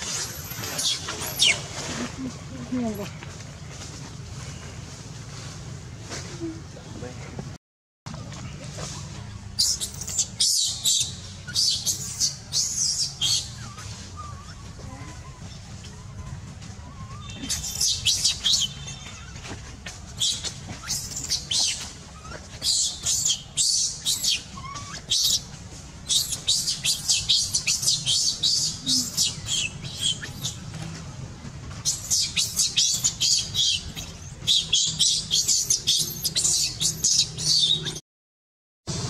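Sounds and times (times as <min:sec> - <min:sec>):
high-pitched chirping calls: 0:09.6 - 0:19.4, 0:20.2 - 0:30.7, 0:31.8 - 0:38.0.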